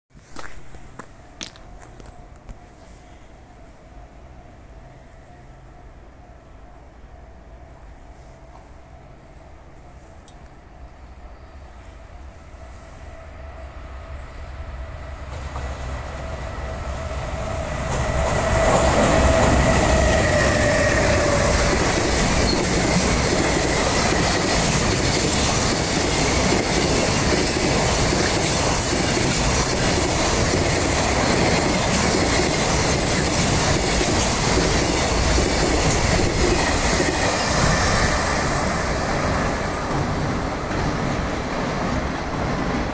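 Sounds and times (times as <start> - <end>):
electric locomotive passing: 0.4 - 42.9.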